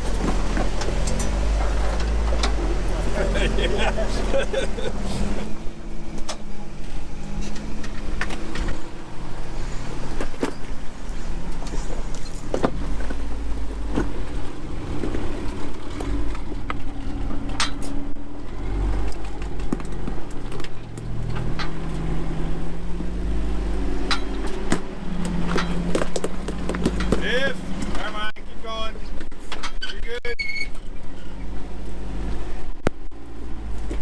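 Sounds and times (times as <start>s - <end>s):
truck engine at low revs: 0.0s - 30.0s, 30.7s - 34.0s
sharp clicks and knocks: 19.0s - 22.0s, 24.0s - 28.2s.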